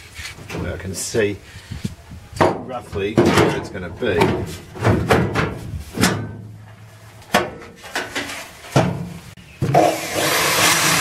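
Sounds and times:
electric drill boring into steel: 0:09.8 - 0:11.0.

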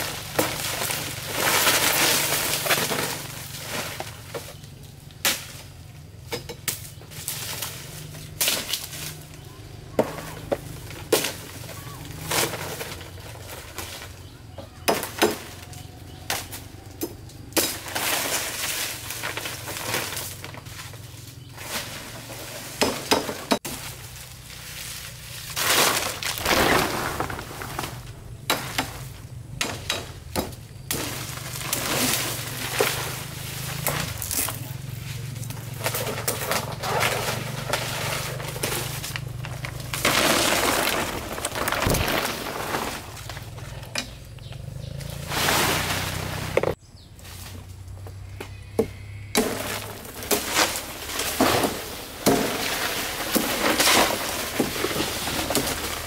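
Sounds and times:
machete chopping woody stems: 0:00.0 - 0:04.6, 0:05.2 - 0:09.3, 0:09.9 - 0:13.1, 0:14.8 - 0:20.4, 0:22.6 - 0:24.1, 0:25.4 - 0:34.6, 0:48.8 - 0:56.0.

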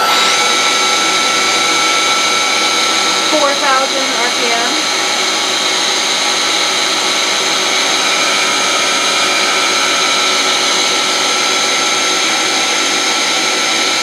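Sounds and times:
high machine whine: 0:00.0 - 0:14.0.

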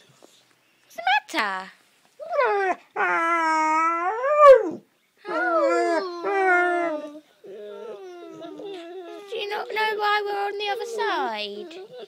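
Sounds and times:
dog whining and howling: 0:02.2 - 0:09.4, 0:10.8 - 0:12.0.

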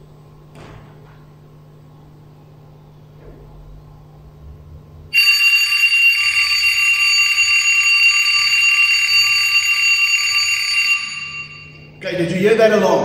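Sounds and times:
bell alarm clock ringing: 0:05.2 - 0:12.0.

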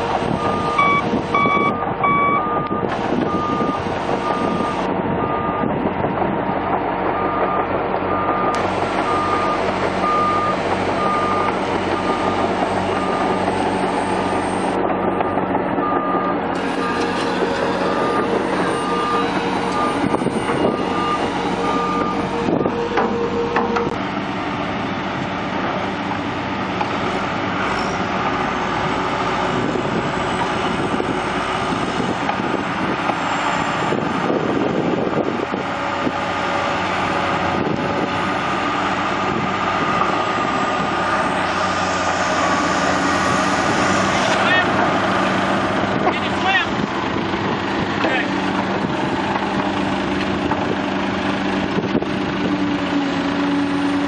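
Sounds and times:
heavy diesel machinery running: 0:00.0 - 0:54.0
backup alarm beeping: 0:00.4 - 0:05.7, 0:15.2 - 0:17.2, 0:17.8 - 0:24.0.

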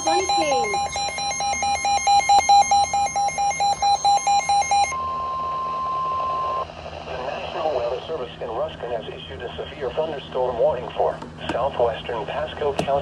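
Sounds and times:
rapid shrill alarm beeps: 0:00.0 - 0:06.6
steady alarm tone: 0:00.0 - 0:06.8.

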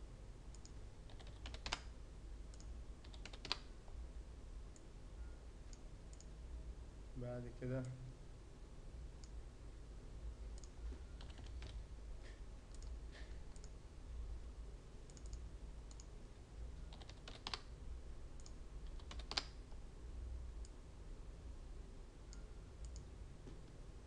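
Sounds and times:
faint low hum: 0:00.0 - 0:24.0
computer mouse clicks: 0:00.5 - 0:01.9, 0:02.5 - 0:03.7, 0:05.7 - 0:06.4, 0:10.6 - 0:11.8, 0:12.7 - 0:13.8, 0:15.1 - 0:16.1, 0:16.9 - 0:17.7, 0:18.4 - 0:19.6, 0:22.3 - 0:23.8
keyboard keystrokes: 0:00.5 - 0:01.9, 0:02.5 - 0:03.7, 0:10.6 - 0:11.8, 0:16.9 - 0:17.7, 0:18.4 - 0:19.6.

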